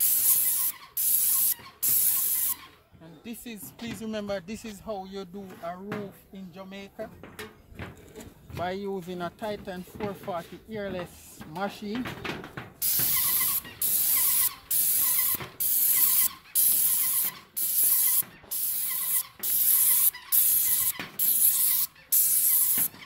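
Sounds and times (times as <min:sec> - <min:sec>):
paint sprayer hissing: 0:00.0 - 0:02.7, 0:12.8 - 0:23.0.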